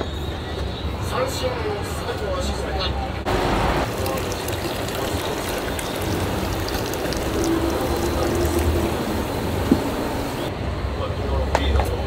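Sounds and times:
liquid pouring into a pot: 0:03.8 - 0:10.4.

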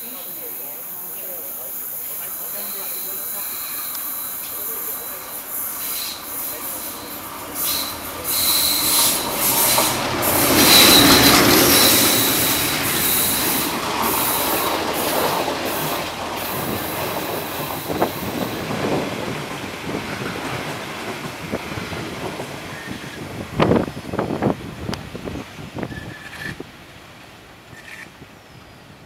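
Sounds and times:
diesel locomotive passing: 0:00.0 - 0:29.0
high wheel squeal: 0:02.2 - 0:15.1, 0:15.8 - 0:18.6, 0:25.8 - 0:26.6.

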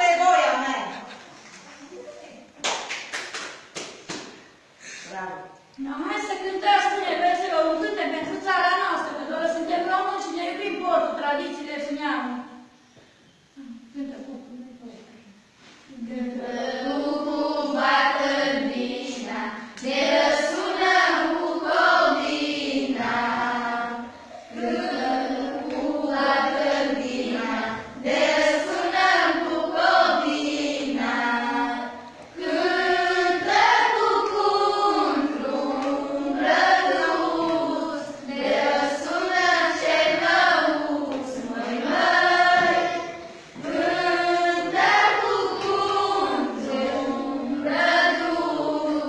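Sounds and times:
group of females singing: 0:15.9 - 0:49.0.

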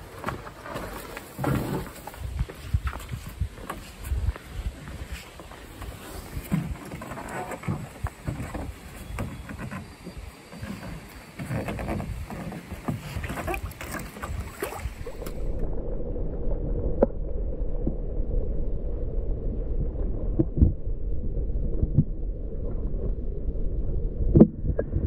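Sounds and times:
canoe hull knocking and scraping: 0:00.0 - 0:15.5
low underwater rumble: 0:13.2 - 0:25.0.

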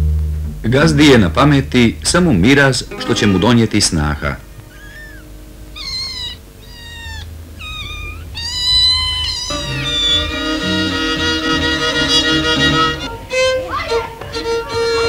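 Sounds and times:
violin playing: 0:02.3 - 0:05.7, 0:09.5 - 0:15.0
kittens mewing: 0:04.2 - 0:15.0.

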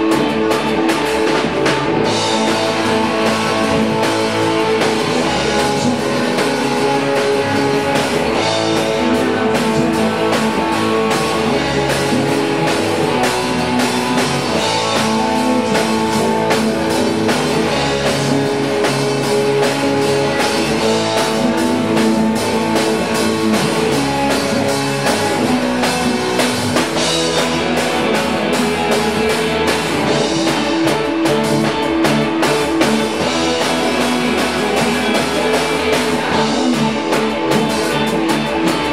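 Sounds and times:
drum kit groove: 0:00.0 - 0:38.9
electric guitar: 0:00.0 - 0:38.9.

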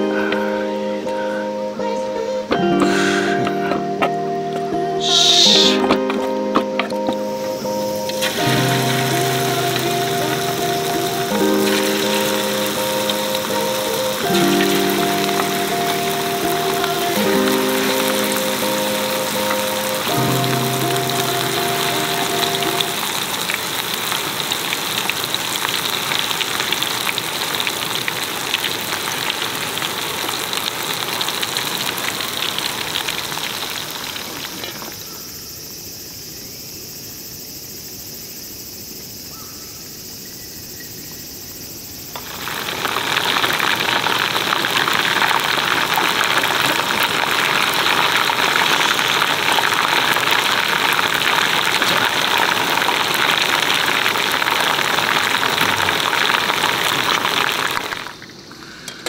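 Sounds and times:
hot oil sizzling and crackling: 0:06.9 - 0:35.2, 0:41.8 - 0:59.0.

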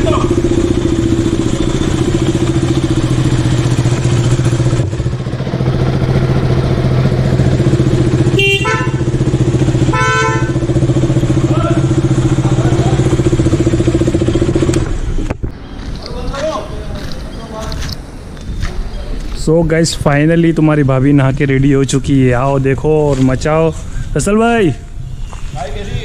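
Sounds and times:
motorcycle engine idling: 0:00.0 - 0:15.4
short horn beeps: 0:08.3 - 0:09.2.

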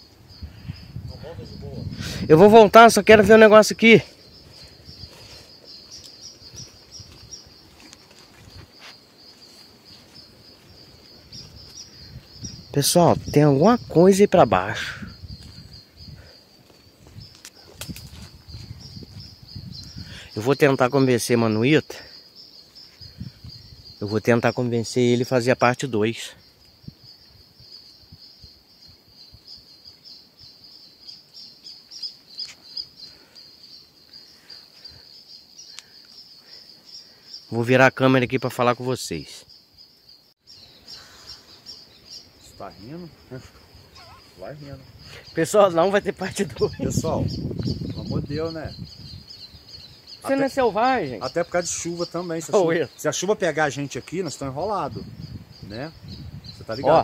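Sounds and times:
bird chirps: 0:00.0 - 0:16.4, 0:17.2 - 0:24.8, 0:29.5 - 0:37.6, 0:39.4 - 0:57.0
insects droning: 0:00.0 - 0:57.0.

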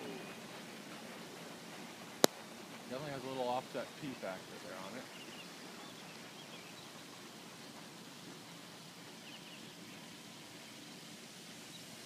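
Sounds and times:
faint bird chirps: 0:00.0 - 0:00.5, 0:04.1 - 0:07.0, 0:09.2 - 0:10.9
faint outdoor hiss: 0:00.0 - 0:12.0.

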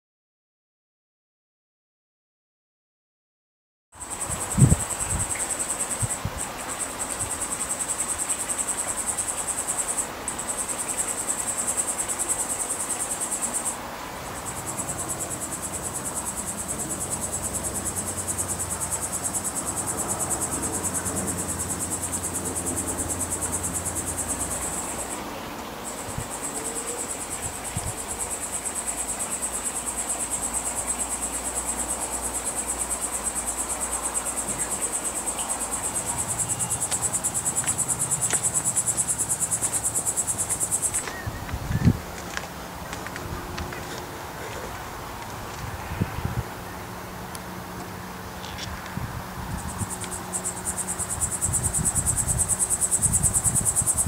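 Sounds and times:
insect buzzing trill: 0:04.0 - 0:13.8, 0:14.4 - 0:42.0, 0:49.4 - 0:54.0.

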